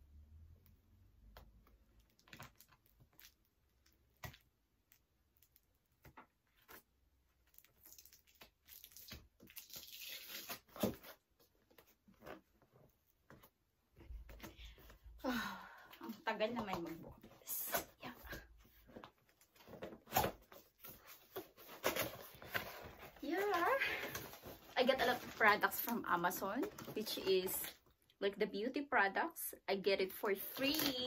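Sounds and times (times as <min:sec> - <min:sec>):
tape tearing and scraping: 0:07.4 - 0:12.4, 0:19.5 - 0:25.6, 0:30.4 - 0:31.0.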